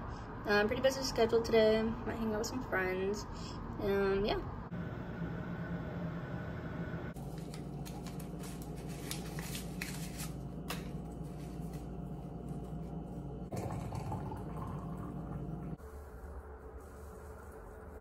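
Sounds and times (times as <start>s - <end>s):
paper wrapper tearing: 7.2s - 11.9s
electric kettle boiling: 12.0s - 15.8s.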